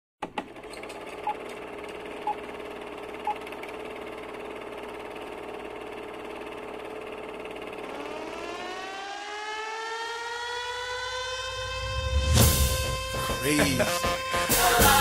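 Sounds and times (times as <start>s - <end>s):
film projector whir: 0.2s - 9.6s.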